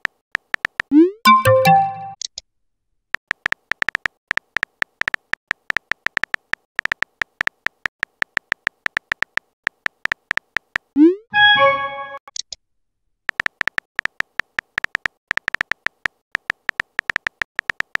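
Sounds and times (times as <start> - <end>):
phone keyboard tapping blips: 0.0 - 2.2, 13.3 - 18.0
multi-tone chime: 1.3 - 2.2, 11.4 - 12.2.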